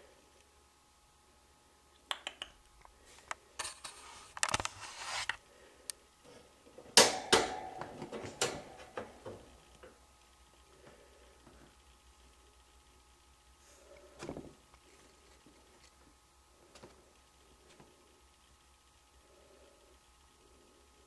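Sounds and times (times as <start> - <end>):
scratchy rustling: 3.6 - 5.4.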